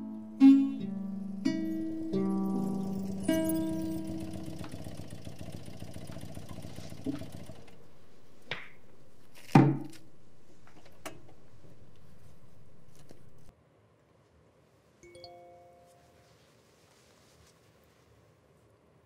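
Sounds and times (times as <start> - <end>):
acoustic guitar notes: 0.0 - 5.1, 15.1 - 16.3
steady low hum: 0.0 - 9.4, 10.0 - 13.5.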